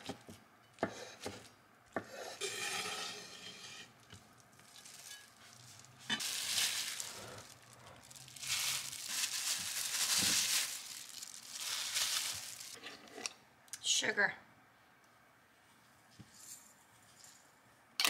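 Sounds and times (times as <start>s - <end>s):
plastic wrapper crinkling: 4.4s - 12.8s.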